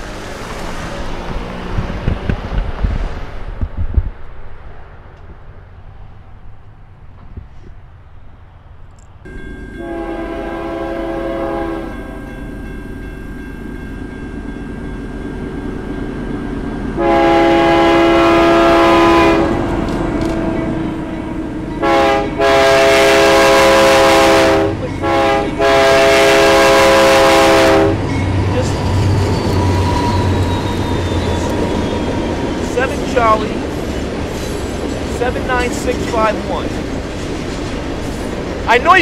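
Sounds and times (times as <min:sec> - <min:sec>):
train horn blasts: 0:09.3 - 0:12.6, 0:16.9 - 0:32.0.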